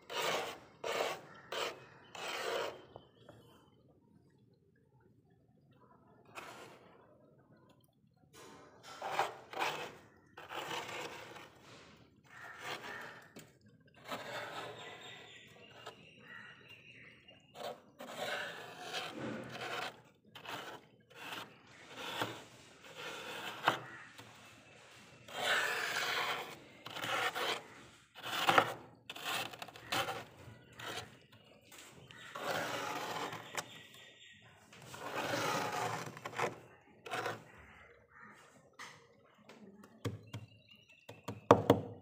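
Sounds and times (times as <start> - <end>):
plastic spoon scraping ice: 0.0 - 3.3, 6.2 - 7.1, 8.9 - 16.5, 17.4 - 34.1, 34.7 - 37.9.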